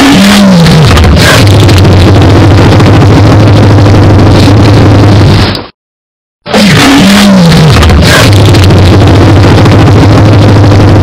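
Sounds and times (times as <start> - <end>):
dinosaur roar: 0.0 - 1.5, 6.5 - 8.6.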